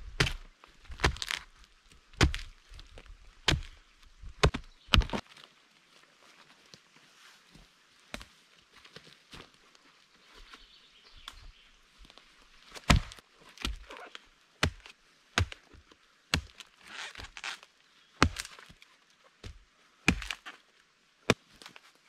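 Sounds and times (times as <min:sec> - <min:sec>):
rustling of wood and leaves: 0:00.0 - 0:22.0
axe chopping log: 0:00.1 - 0:01.4, 0:02.2 - 0:02.6, 0:03.4 - 0:03.8, 0:04.4 - 0:05.2, 0:12.8 - 0:14.0, 0:14.6 - 0:17.4, 0:18.2 - 0:18.6, 0:19.4 - 0:20.5.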